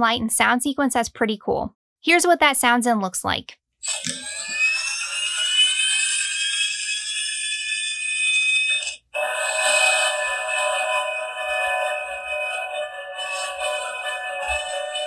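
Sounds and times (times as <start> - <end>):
electronic drone: 3.8 - 15.0
rising electronic whine: 3.9 - 15.0.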